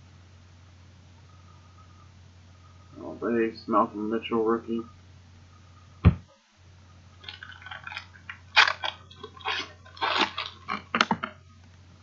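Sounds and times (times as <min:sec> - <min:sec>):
foil wrapper crinkling and tearing: 0:07.2 - 0:11.1.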